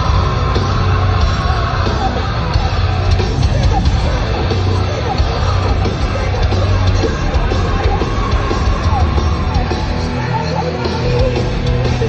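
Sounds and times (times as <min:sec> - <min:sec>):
live heavy metal band: 0:00.0 - 0:12.0
yelled vocals: 0:00.0 - 0:12.0.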